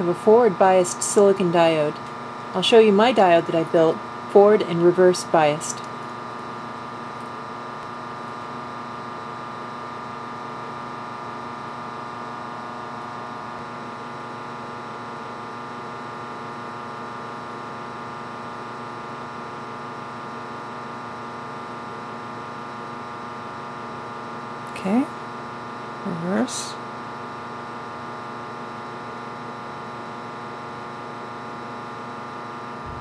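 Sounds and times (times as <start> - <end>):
fan whir: 0.0 - 16.1, 24.6 - 33.0
electrical hum with fixed tones: 0.0 - 33.0.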